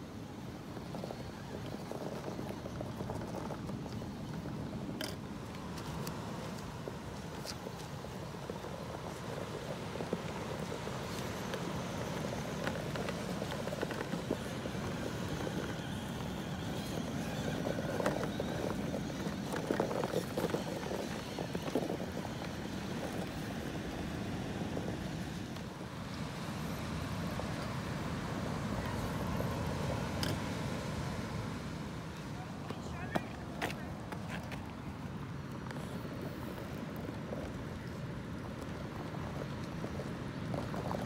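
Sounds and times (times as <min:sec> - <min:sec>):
tires scrabbling on rock: 0:00.1 - 0:41.0
rc car motor and gears grinding: 0:00.5 - 0:25.7.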